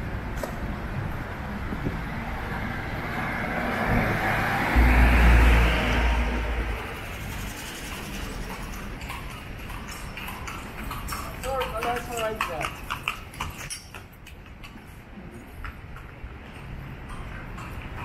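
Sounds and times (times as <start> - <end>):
street noise: 0.0 - 18.0
motor vehicle passing: 1.8 - 13.7.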